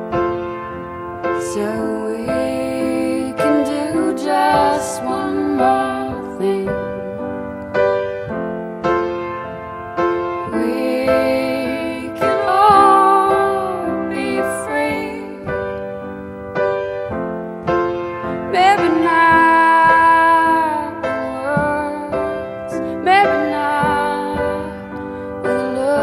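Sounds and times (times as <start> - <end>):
woman singing: 1.4 - 7.6, 10.4 - 15.8, 18.5 - 26.0.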